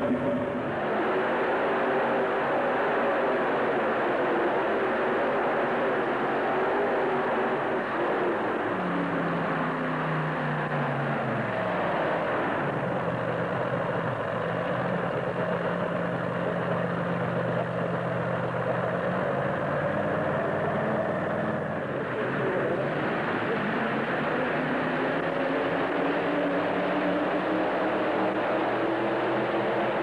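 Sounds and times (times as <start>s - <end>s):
tractor engine winding down and idling: 8.8s - 25.3s.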